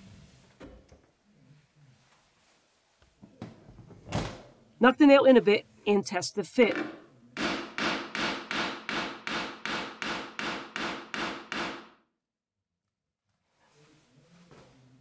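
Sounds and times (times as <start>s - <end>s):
hammer tapping nail into wood: 6.7s - 11.9s.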